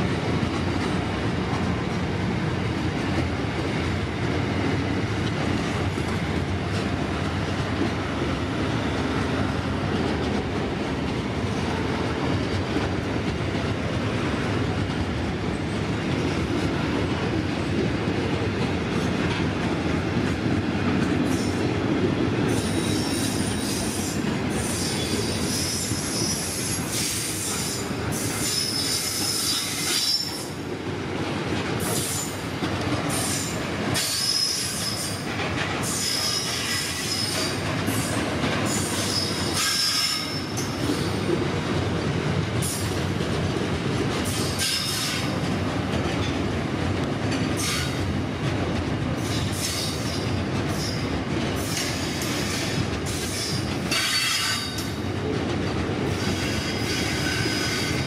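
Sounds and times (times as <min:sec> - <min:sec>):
freight train rumbling past: 0:00.0 - 0:58.0
train wheels squealing: 0:22.5 - 0:30.6, 0:31.9 - 0:32.4, 0:33.1 - 0:41.3, 0:44.3 - 0:45.4, 0:47.5 - 0:48.0, 0:49.2 - 0:55.0, 0:56.1 - 0:58.0.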